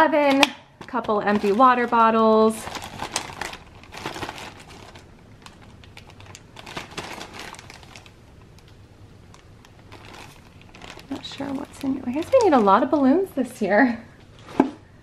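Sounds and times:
plastic bags and bottle crinkling: 0:00.1 - 0:13.4.

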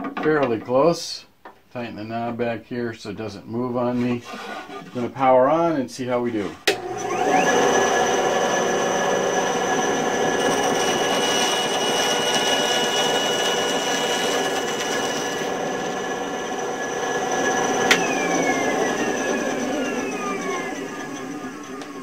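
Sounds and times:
band saw whining: 0:06.4 - 0:22.0.

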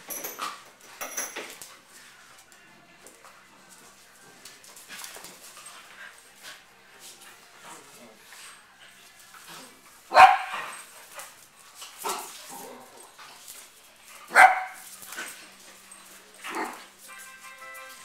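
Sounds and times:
dogs barking: 0:10.1 - 0:10.8, 0:14.2 - 0:14.9.

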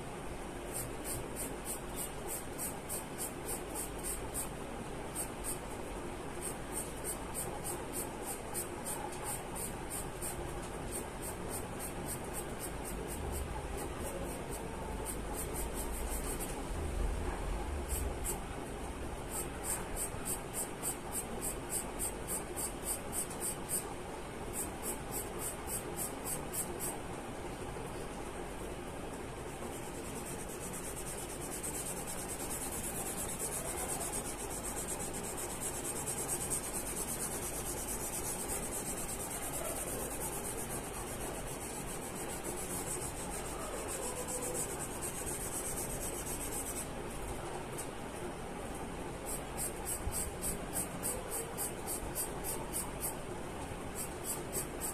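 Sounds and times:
charcoal pencil scratching paper: 0:00.7 - 0:04.5, 0:06.4 - 0:16.6, 0:17.8 - 0:18.4, 0:19.3 - 0:23.8, 0:29.7 - 0:46.9, 0:49.3 - 0:53.2, 0:54.0 - 0:54.9.

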